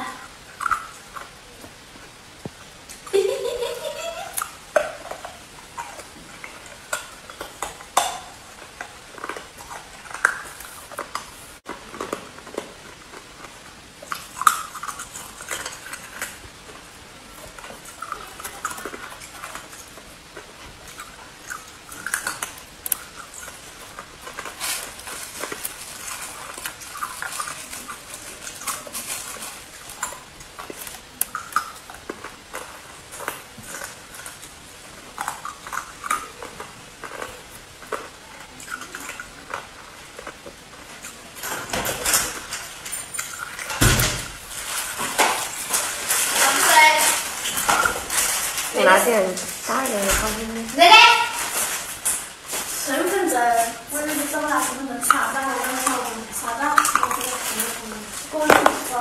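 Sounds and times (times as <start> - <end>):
plastic bag crinkling: 2.9 - 59.0
ice crunching while chewed: 4.3 - 43.8, 44.4 - 50.0, 51.0 - 59.0
ice chunks clinking: 44.4 - 50.0.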